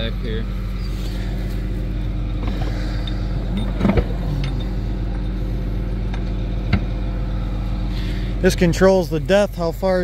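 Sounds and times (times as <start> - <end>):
diesel tractor engine idling: 0.0 - 10.0
sharp metal clanks: 2.4 - 5.3.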